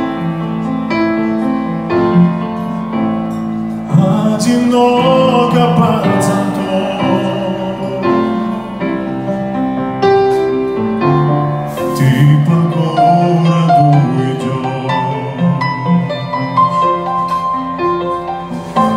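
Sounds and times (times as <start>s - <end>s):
piano accompaniment: 0.0s - 18.9s
man singing a ballad: 3.8s - 9.5s, 11.7s - 17.0s.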